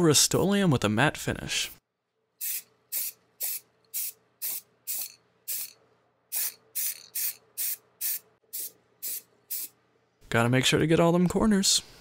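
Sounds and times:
spray paint can hissing: 2.4 - 9.7.

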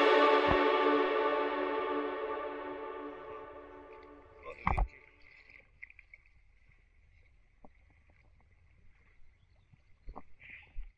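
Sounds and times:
background music: 0.0 - 4.5.

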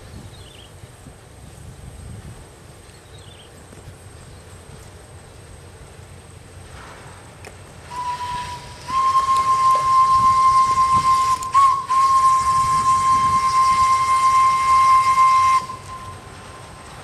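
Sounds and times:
steam locomotive whistle blasts: 7.9 - 17.0.

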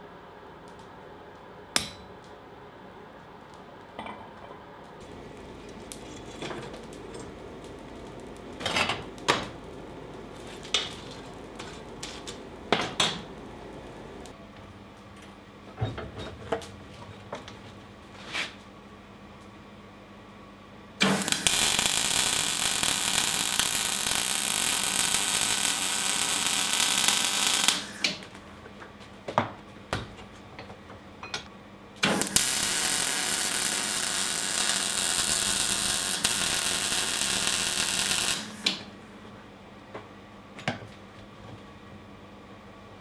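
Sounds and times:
welding arc crackling: 5.0 - 14.4, 21.0 - 28.4, 32.0 - 38.9.

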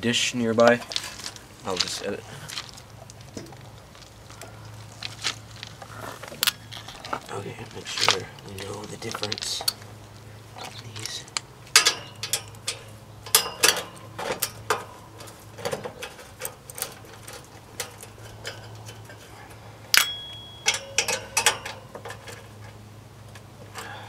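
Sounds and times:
sharp metal clink: 11.8 - 14.0, 19.9 - 21.9
metal tool clicking on nuts: 19.9 - 22.4.

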